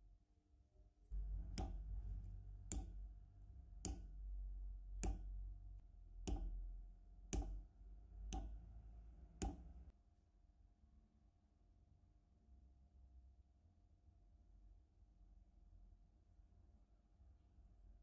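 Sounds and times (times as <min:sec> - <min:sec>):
low steady rumble: 0:01.1 - 0:09.9.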